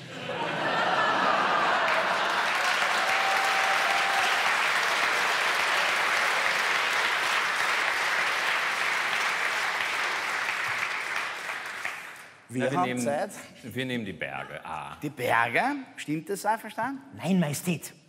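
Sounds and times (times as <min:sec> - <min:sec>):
studio audience applauding: 0:00.6 - 0:12.7.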